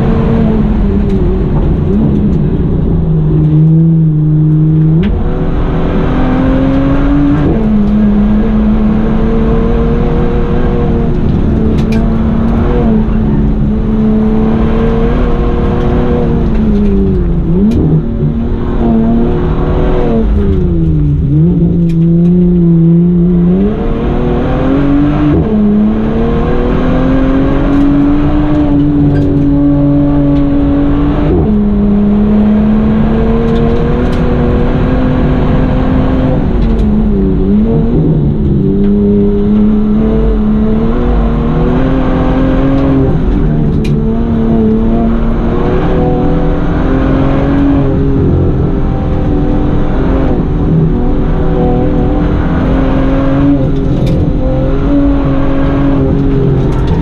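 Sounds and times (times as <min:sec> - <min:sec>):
racing car engine: 0:00.0 - 0:57.0.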